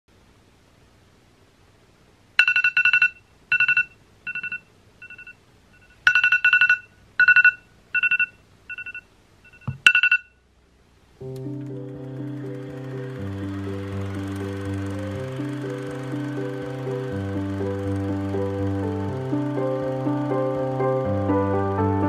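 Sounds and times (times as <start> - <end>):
phone alarm beeping: 2.4 - 10.4.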